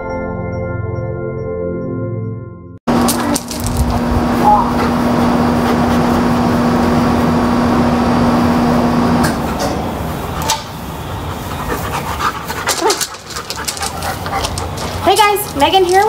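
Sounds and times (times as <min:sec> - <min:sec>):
puppy panting: 0:03.8 - 0:07.1, 0:10.3 - 0:16.0.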